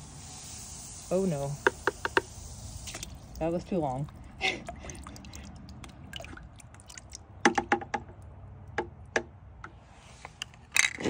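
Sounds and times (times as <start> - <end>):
faint sloshing water: 1.1 - 8.4.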